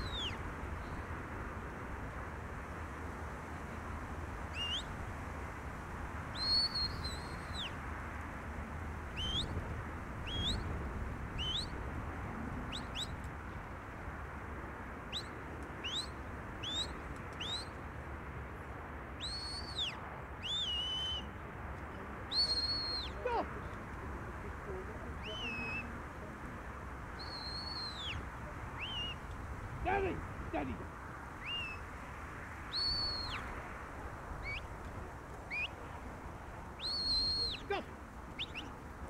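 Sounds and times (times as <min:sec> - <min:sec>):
short rising whistles: 0:06.4 - 0:07.7, 0:19.2 - 0:21.3, 0:27.2 - 0:28.2, 0:31.4 - 0:31.8, 0:32.7 - 0:33.4, 0:35.5 - 0:35.7, 0:36.8 - 0:37.6
long whistles: 0:19.2 - 0:21.3, 0:27.2 - 0:28.2, 0:32.7 - 0:33.4, 0:35.5 - 0:35.7, 0:36.8 - 0:37.6.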